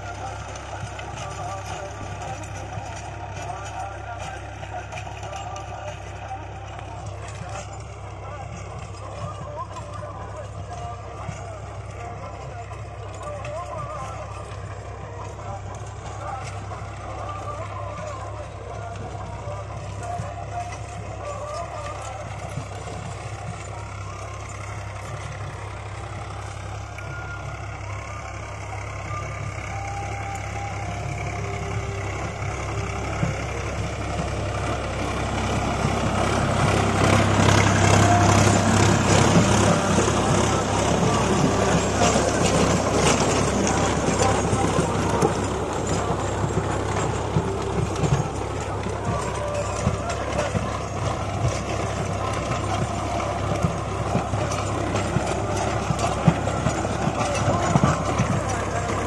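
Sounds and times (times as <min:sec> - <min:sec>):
tractor diesel engine under load: 0:00.0 - 0:59.0
rotavator blades churning soil: 0:31.9 - 0:59.0.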